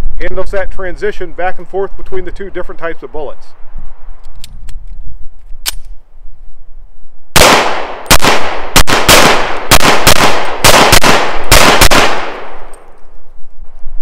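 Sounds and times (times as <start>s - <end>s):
sharp click: 4.2s - 6.0s
pistol shots with ringing echo: 7.4s - 12.9s.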